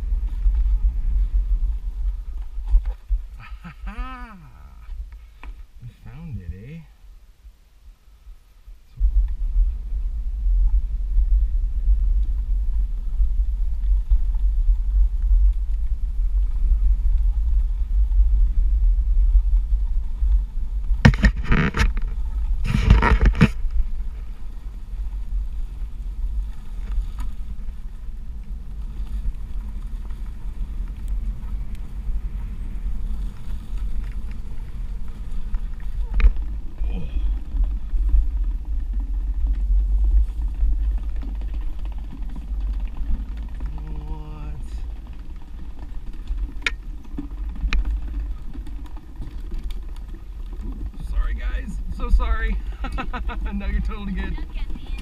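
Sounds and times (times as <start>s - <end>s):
electric board rumbling on gravel: 0.0s - 55.0s.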